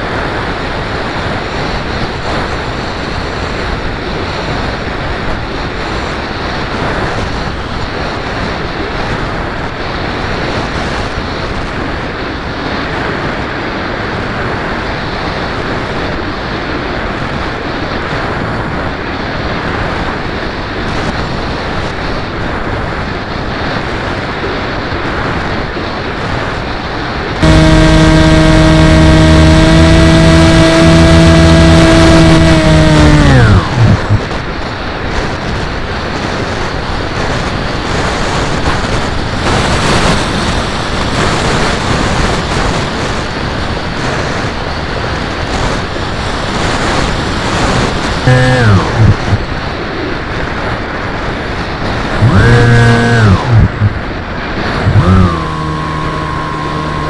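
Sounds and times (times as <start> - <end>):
wind rushing over camera: 0.0 - 57.0
electric motor and propeller whine: 27.2 - 35.4, 37.0 - 43.4, 45.4 - 50.1, 51.6 - 57.0.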